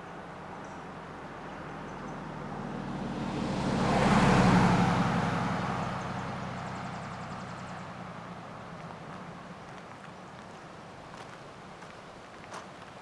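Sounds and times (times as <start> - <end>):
pickup truck driving past: 1.8 - 10.0.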